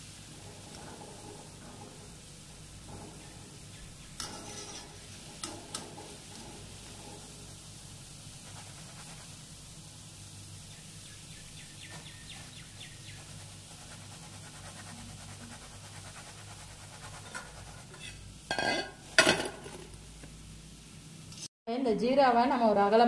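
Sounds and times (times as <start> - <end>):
dough balls sizzling in hot oil: 0.0 - 21.5.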